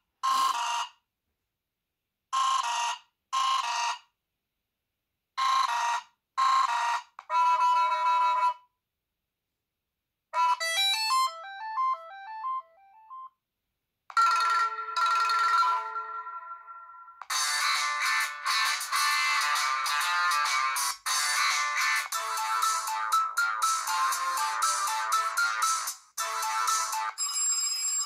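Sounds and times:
phone ringtone synth phrases: 0:10.4 - 0:13.3, 0:14.2 - 0:28.0.

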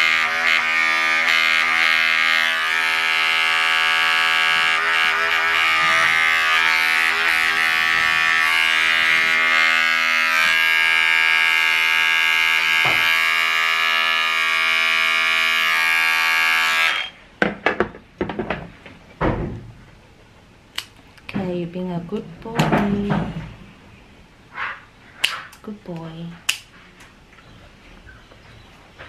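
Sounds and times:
electric clipper buzzing: 0:00.0 - 0:17.2.

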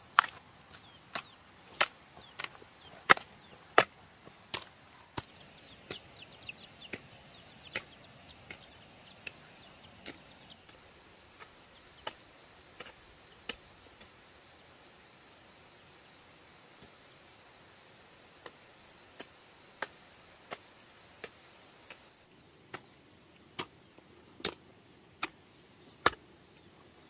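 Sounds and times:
hand hoe chopping into soil: 0:00.0 - 0:10.8, 0:22.7 - 0:23.8, 0:24.4 - 0:24.6, 0:25.2 - 0:25.4, 0:26.0 - 0:26.3
chicks cheeping: 0:02.2 - 0:03.6, 0:05.2 - 0:10.6.

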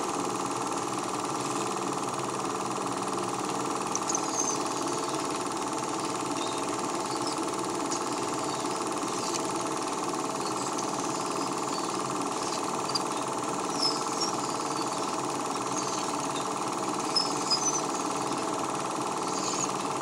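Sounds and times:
film projector whirring: 0:00.0 - 0:20.0
small clicks: 0:03.9 - 0:04.6.

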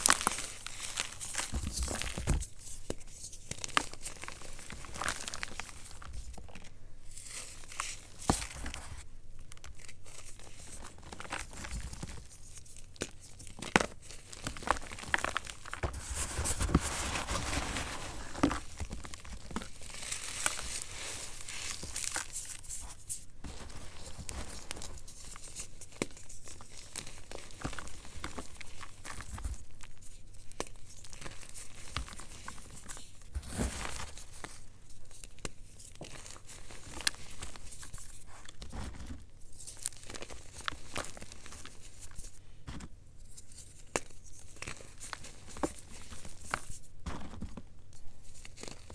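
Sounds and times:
chalk crunching by hand: 0:14.5 - 0:29.5.

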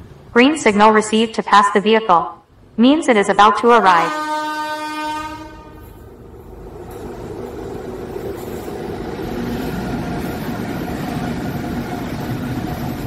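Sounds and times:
electric locomotive hum: 0:02.4 - 0:13.0
train wheels rumbling on rails: 0:05.2 - 0:13.0.

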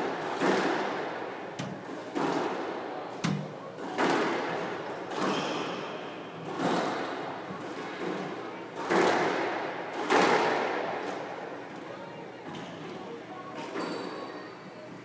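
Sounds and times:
squash ball hits: 0:00.0 - 0:02.6, 0:08.8 - 0:11.1.

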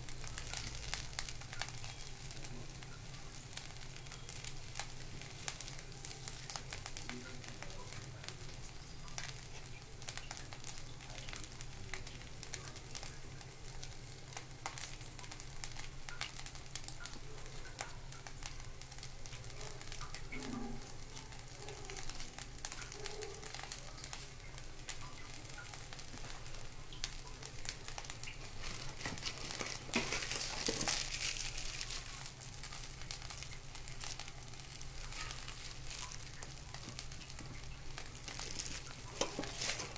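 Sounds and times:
rice sizzling and crackling: 0:00.0 - 0:39.9
plastic packet crinkling: 0:26.0 - 0:39.9.

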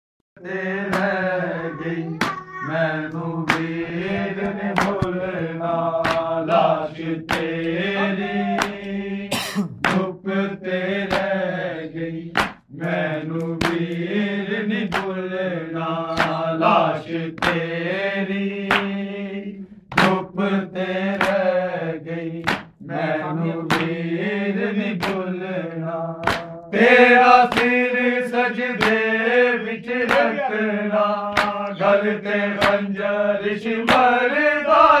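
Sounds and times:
male voices chanting a lament: 0:00.4 - 0:35.0
hands slapping on chests: 0:00.9 - 0:01.2, 0:02.2 - 0:02.5, 0:03.1 - 0:09.0, 0:09.8 - 0:10.2, 0:11.0 - 0:11.5, 0:12.3 - 0:15.2, 0:16.1 - 0:17.8, 0:18.6 - 0:19.0, 0:19.9 - 0:20.3, 0:21.1 - 0:21.6, 0:22.4 - 0:22.8, 0:23.6 - 0:24.1, 0:25.0 - 0:26.6, 0:27.2 - 0:29.1, 0:30.0 - 0:30.7, 0:31.3 - 0:32.9, 0:33.8 - 0:34.3.

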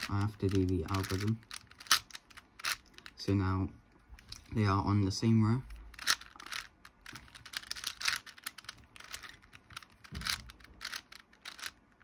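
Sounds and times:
puzzle cube clicking and clacking: 0:00.0 - 0:03.2, 0:05.6 - 0:12.0.

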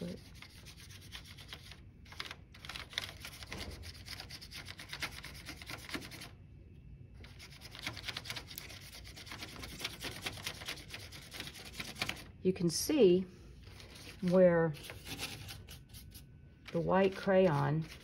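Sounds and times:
paintbrush scrubbing on paper: 0:00.0 - 0:01.8, 0:07.2 - 0:12.3, 0:13.6 - 0:18.0.

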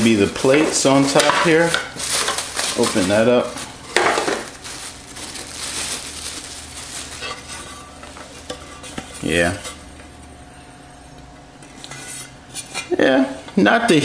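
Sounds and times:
plastic wrap crinkling: 0:00.0 - 0:10.3.

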